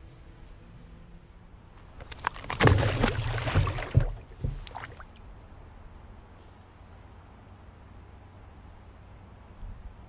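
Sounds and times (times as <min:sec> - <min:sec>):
water splashing: 0:01.9 - 0:05.3
knocks against kayak hull: 0:02.3 - 0:05.0.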